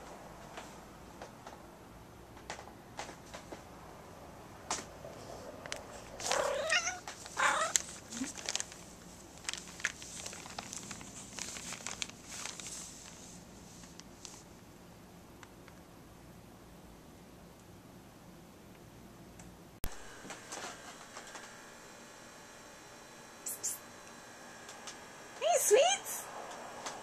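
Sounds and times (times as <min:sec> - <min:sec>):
plastic bag crinkling: 0:06.1 - 0:14.5
cat crying: 0:06.3 - 0:07.8.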